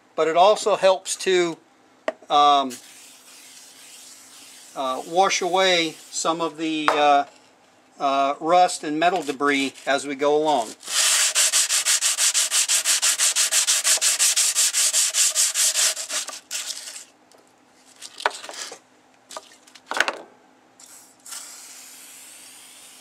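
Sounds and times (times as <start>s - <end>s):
sanding block scrubbing metal blade: 2.7s - 6.5s, 10.7s - 17.0s.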